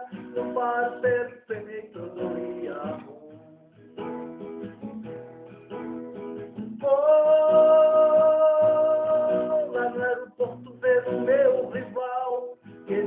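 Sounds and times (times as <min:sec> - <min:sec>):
person singing: 0:00.0 - 0:03.8, 0:06.7 - 0:13.0
strummed acoustic guitar: 0:00.0 - 0:13.0.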